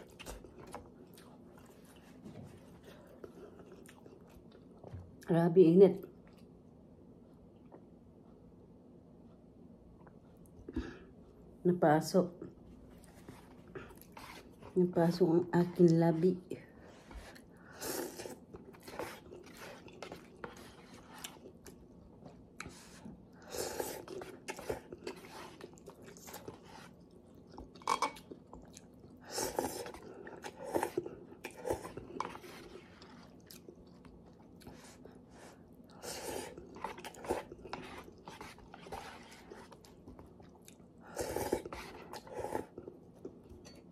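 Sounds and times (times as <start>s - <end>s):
chewing: 0.0s - 5.2s, 12.9s - 14.8s, 17.0s - 43.9s.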